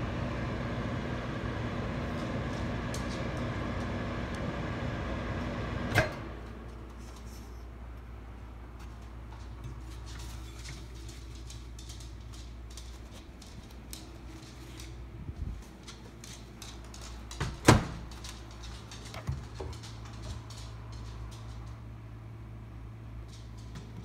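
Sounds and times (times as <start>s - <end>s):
microwave oven humming: 0.0s - 6.9s.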